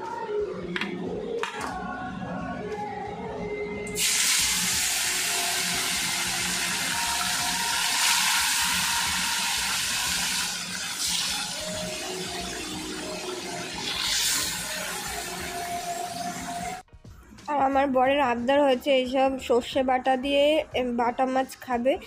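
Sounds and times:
fish sizzling in hot oil: 4.0 - 16.8.

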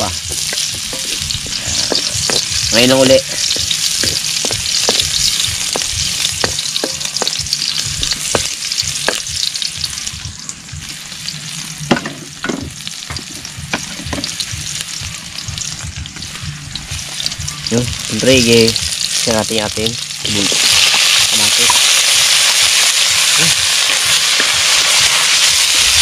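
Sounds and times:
food sizzling in oil: 0.0 - 26.0
utensil scraping a pan: 0.3 - 5.9.

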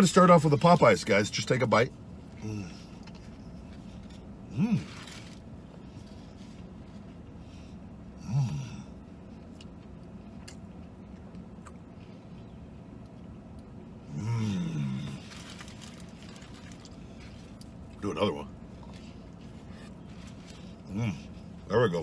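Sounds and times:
steady low hum: 0.0 - 22.0
man humming mmm: 4.5 - 4.9, 8.2 - 9.0, 14.1 - 15.2.

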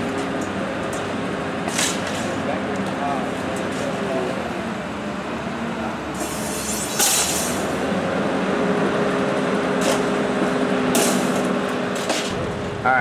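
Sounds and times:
sharp metal clank: 6.2 - 7.6, 10.9 - 12.4
hydraulic hiss: 6.2 - 7.7.

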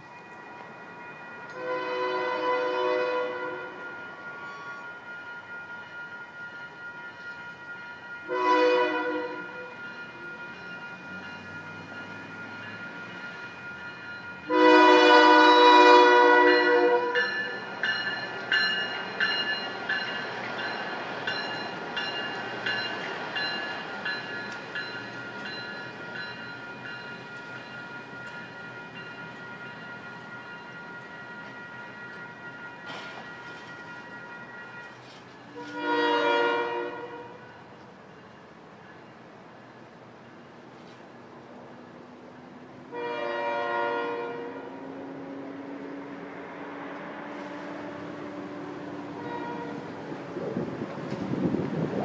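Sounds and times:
crossing warning bell ringing: 0.0 - 39.3
train horn blasts: 1.5 - 5.9, 8.2 - 10.6, 14.4 - 17.6, 32.2 - 37.6, 42.9 - 50.0
train wheels clicking over rail joints: 32.8 - 34.1.

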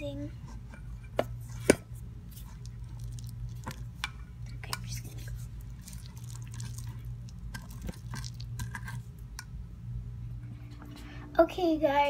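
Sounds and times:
slime squelching when stirred: 1.4 - 9.5.

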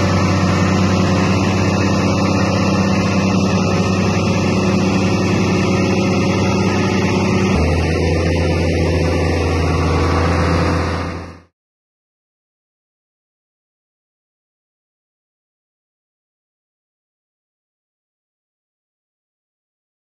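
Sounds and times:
tractor diesel engine running: 0.0 - 11.5.

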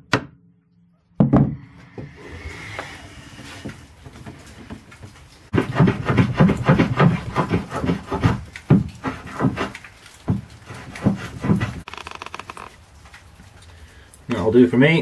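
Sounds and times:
hand tool shaving wood: 5.5 - 12.7.

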